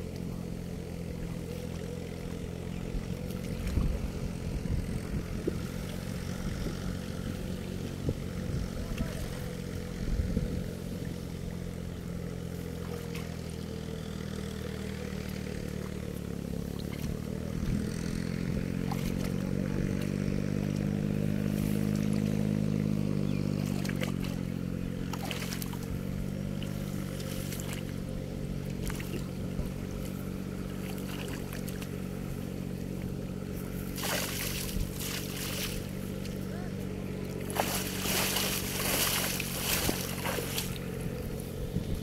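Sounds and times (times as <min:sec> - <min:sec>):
small engine running: 0:00.0 - 0:42.0
water splashing: 0:23.5 - 0:32.3, 0:33.7 - 0:36.4, 0:37.2 - 0:41.4.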